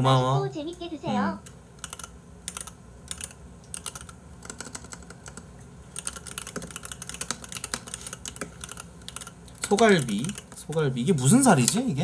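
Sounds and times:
keyboard typing clicks: 1.4s - 10.8s.

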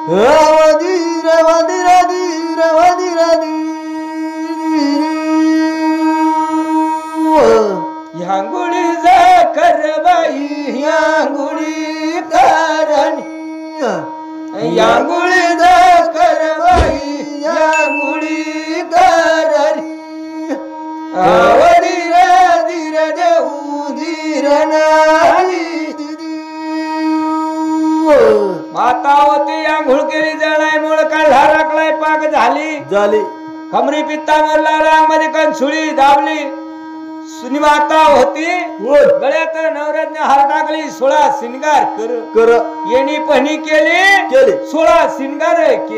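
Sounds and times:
steady drone: 16.6s - 19.0s
sharp percussive strokes: 16.7s - 17.2s, 17.8s - 18.6s.

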